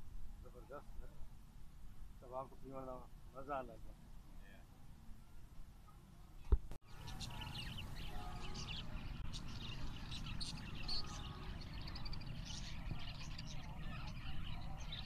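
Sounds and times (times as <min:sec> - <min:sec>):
budgerigars chirping: 0:06.9 - 0:15.0.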